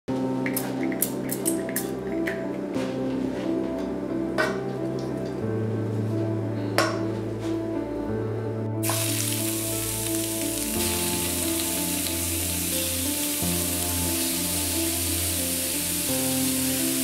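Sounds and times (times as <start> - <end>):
background music: 0.1 - 17.0
meat sizzling in a skillet: 8.8 - 17.0.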